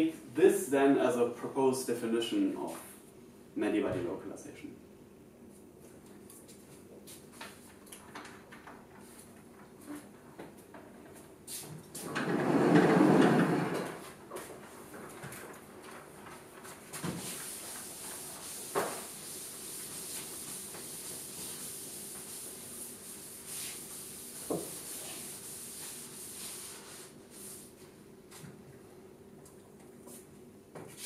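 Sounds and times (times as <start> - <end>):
chalkboard panel sliding on tracks: 12.0 - 14.1
eraser wiping chalkboard: 16.6 - 27.9.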